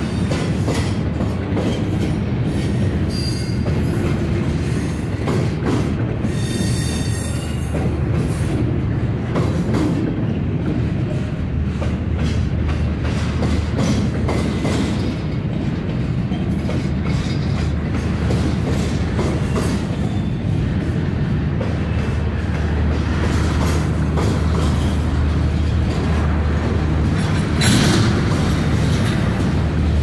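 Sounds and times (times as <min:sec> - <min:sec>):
freight train cars rumbling: 0:00.0 - 0:30.0
high wheel squeal: 0:06.3 - 0:07.6.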